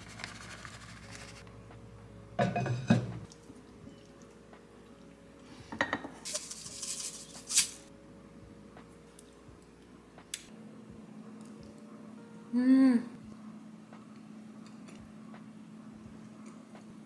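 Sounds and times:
sesame seeds rattling: 0:06.3 - 0:07.9.

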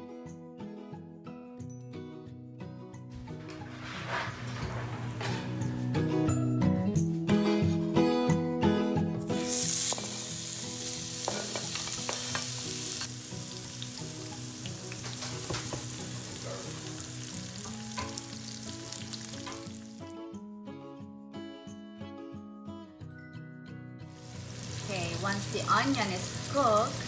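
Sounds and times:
background music: 0:00.0 - 0:27.0
onion sizzling in fat: 0:09.3 - 0:20.1, 0:24.2 - 0:27.0
spatula stirring in skillet: 0:17.3 - 0:20.0.

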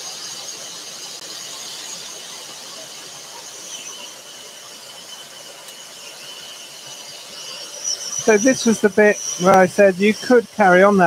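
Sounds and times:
scroll saw cutting wood: 0:02.8 - 0:11.0.

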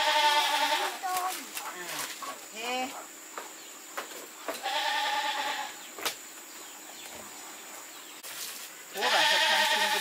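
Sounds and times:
goat bleating: 0:00.0 - 0:01.2, 0:04.6 - 0:05.8, 0:08.9 - 0:10.0.

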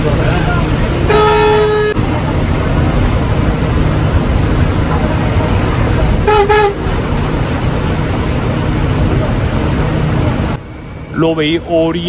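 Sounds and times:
bus engine and road rumble: 0:00.0 - 0:12.0
vehicle horn toots: 0:01.1 - 0:02.0, 0:06.2 - 0:06.8.

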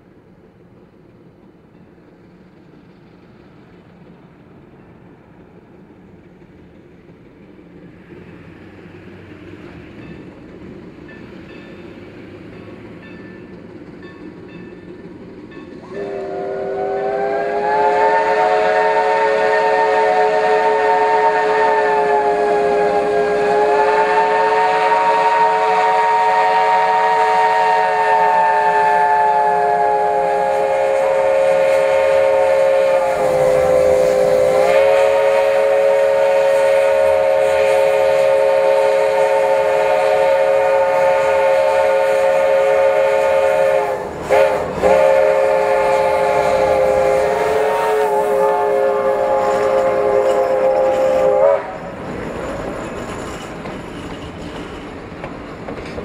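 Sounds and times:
steam locomotive chime whistle: 0:11.1 - 0:54.8.

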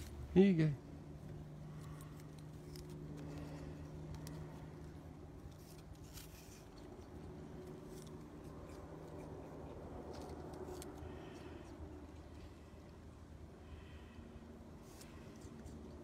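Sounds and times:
low steady hum: 0:00.0 - 0:16.0
possum chewing clicks: 0:06.6 - 0:12.4.

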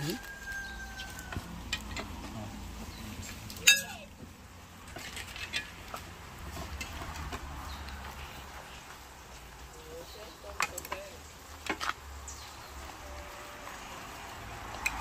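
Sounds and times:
metal spoon clinking against pot: 0:03.6 - 0:04.0.

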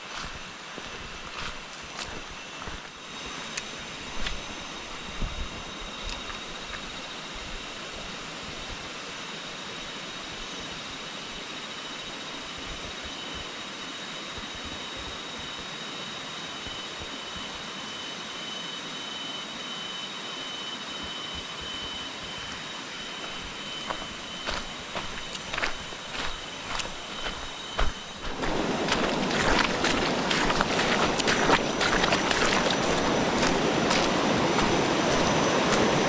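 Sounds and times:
high-pitched steady tone: 0:10.6 - 0:36.0
river rapid rushing: 0:25.0 - 0:36.0.

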